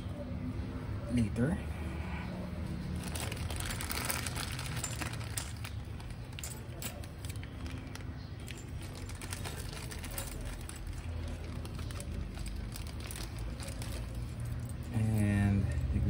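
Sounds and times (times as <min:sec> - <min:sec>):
plastic bag crinkling: 0:03.0 - 0:14.8.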